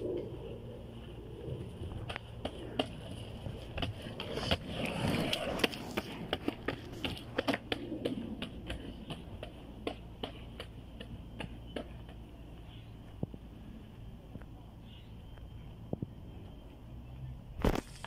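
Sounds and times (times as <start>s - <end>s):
skateboard wheels rumbling: 0.0s - 18.0s
skateboard clicks and knocks: 1.6s - 13.4s.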